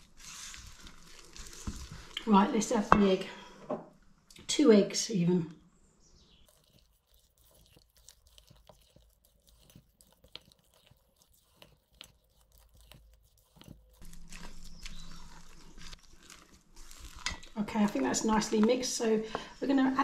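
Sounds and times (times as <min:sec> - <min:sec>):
spatula squelching through batter: 0:00.0 - 0:02.2, 0:06.4 - 0:18.7.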